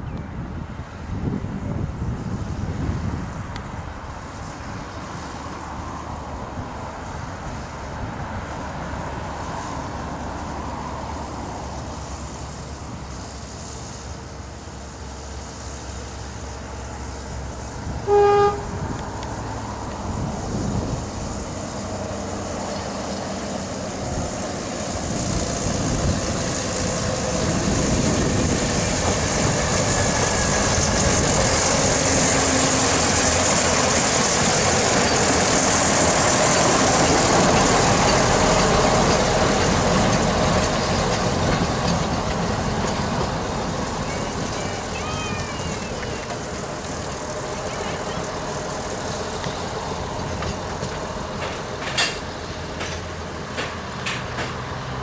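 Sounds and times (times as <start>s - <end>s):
diesel locomotive engine running: 0.0s - 55.0s
locomotive horn toot: 18.0s - 19.0s.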